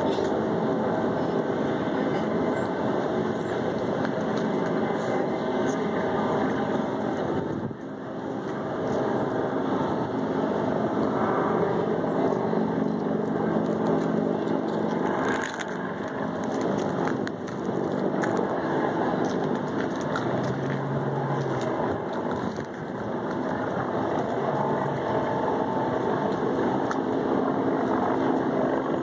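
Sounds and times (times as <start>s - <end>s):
jet engines rushing: 0.0s - 29.0s.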